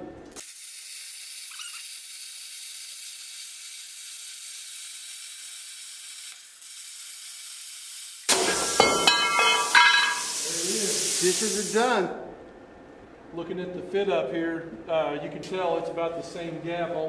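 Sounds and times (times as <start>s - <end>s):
plasma cutter hissing: 0.4s - 12.0s.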